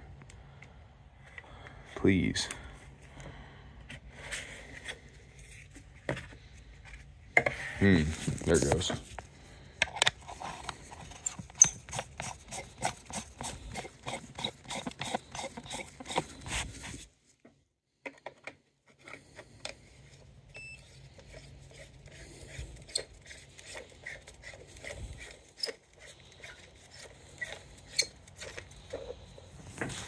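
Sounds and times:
handling clicks taps and scrapes: 0:08.3 - 0:20.3, 0:21.0 - 0:30.0.

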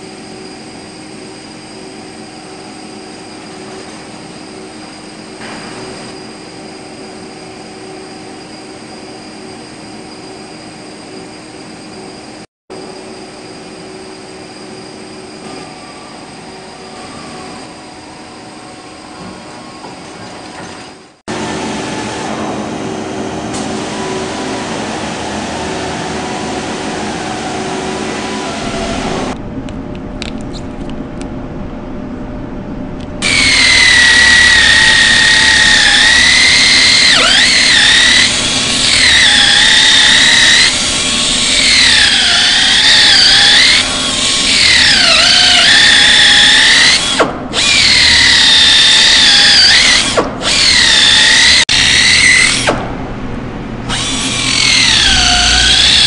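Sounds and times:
steady machine noise: 0:00.0 - 0:56.0
die grinder whining: 0:33.2 - 0:52.9, 0:53.9 - 0:56.0.

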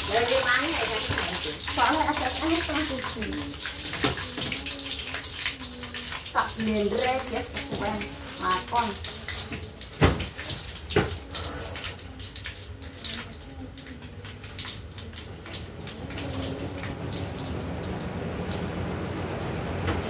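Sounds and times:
watery hiss: 0:11.3 - 0:12.0.

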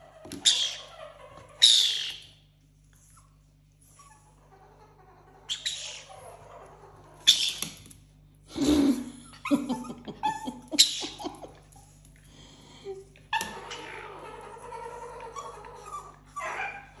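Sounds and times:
dog whimpering and yipping: 0:00.0 - 0:02.2, 0:03.1 - 0:07.7, 0:09.3 - 0:12.0, 0:13.3 - 0:17.0.

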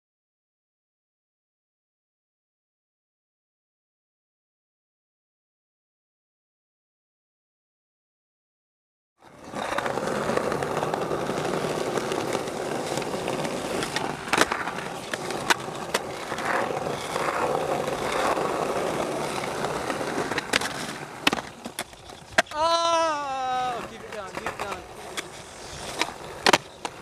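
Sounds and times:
skateboard clacks: 0:09.2 - 0:27.0
skateboard wheels rolling on paving: 0:09.2 - 0:27.0.

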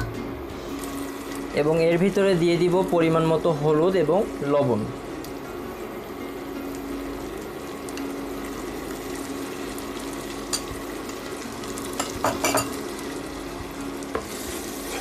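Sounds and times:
paste sizzling in hot oil: 0:06.8 - 0:15.0.

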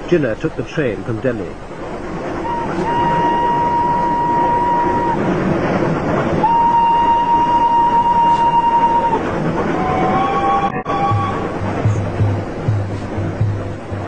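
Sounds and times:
moving train running noise: 0:00.0 - 0:14.0
train whistle blasts: 0:02.4 - 0:05.2, 0:06.4 - 0:11.5.

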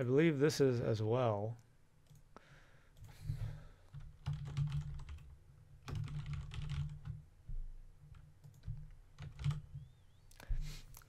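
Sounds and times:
typing on a keyboard: 0:03.9 - 0:07.2, 0:08.0 - 0:09.9.

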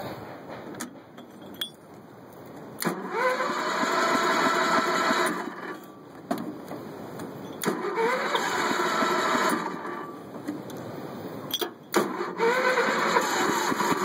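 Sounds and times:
engine cranking: 0:02.8 - 0:05.8, 0:07.5 - 0:10.2, 0:11.5 - 0:14.0.

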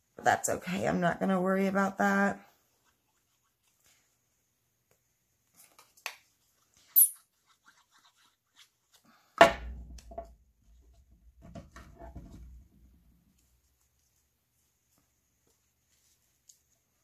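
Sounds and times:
handling noise on paper: 0:04.9 - 0:09.3.

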